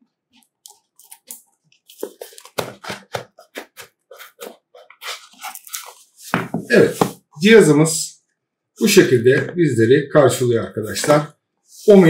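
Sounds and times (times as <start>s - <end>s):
cardboard and plastic packaging crinkling: 1.0s - 6.2s.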